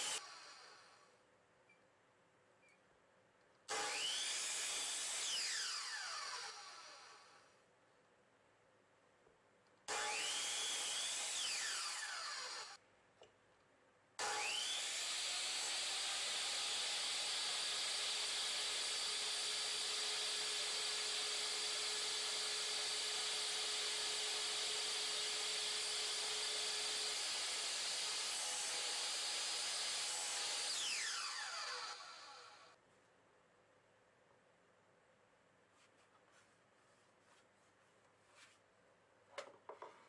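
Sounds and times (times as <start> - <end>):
saw blade cutting wood: 0.0 - 1.0, 3.7 - 7.3, 9.9 - 12.8, 14.2 - 32.7.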